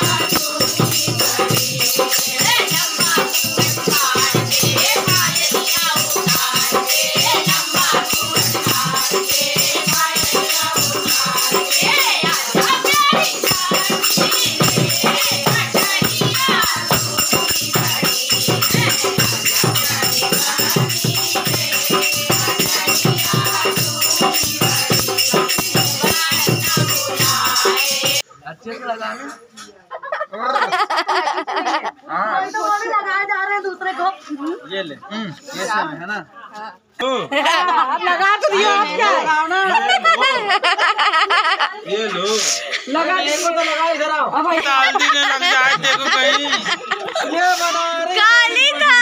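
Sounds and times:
hand drum rhythm: 0.0 - 28.2
women singing folk song: 0.0 - 28.2.

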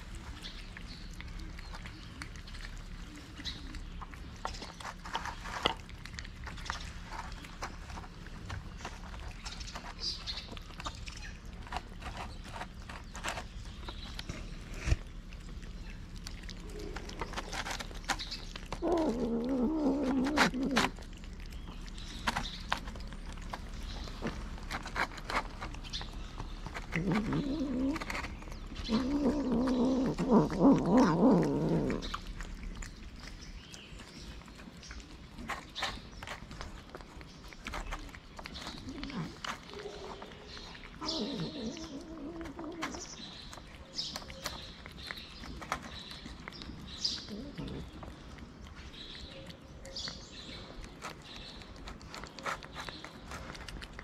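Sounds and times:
birds chirping: 0.0 - 54.0
cats chewing wet food: 0.0 - 54.0
cat growling: 14.4 - 22.0, 24.8 - 33.1, 38.4 - 43.6, 44.4 - 48.4.

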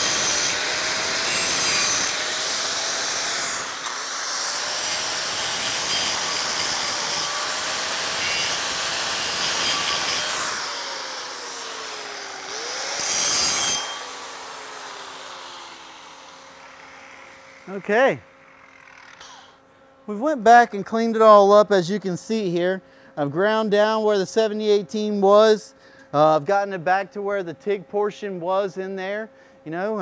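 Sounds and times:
angle grinder grinding metal: 0.0 - 19.6.

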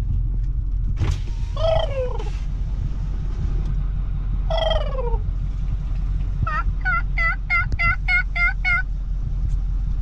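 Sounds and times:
truck engine rumble: 0.0 - 10.0
wild turkeys yelping: 1.6 - 2.4, 4.5 - 5.3, 6.4 - 8.9.

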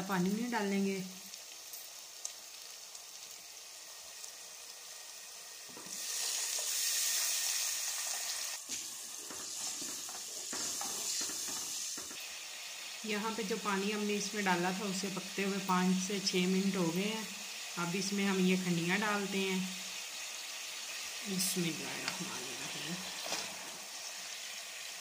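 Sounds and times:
masala sizzling in a pan: 0.0 - 25.0
water poured into hot pan: 1.2 - 13.1.

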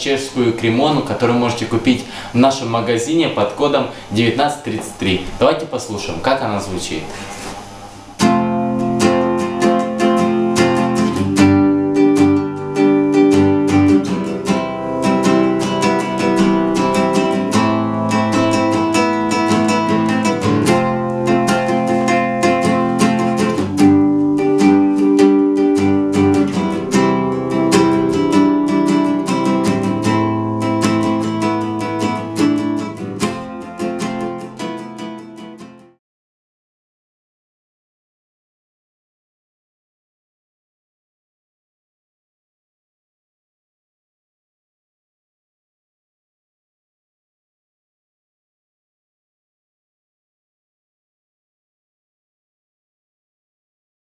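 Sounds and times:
classical guitar strummed chords: 7.6 - 36.0.

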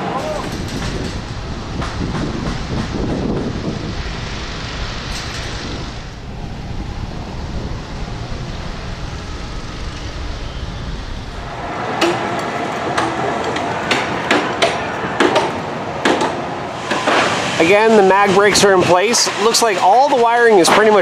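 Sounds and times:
wind rumbling on microphone: 0.0 - 21.0
hammer blows: 11.4 - 21.0.

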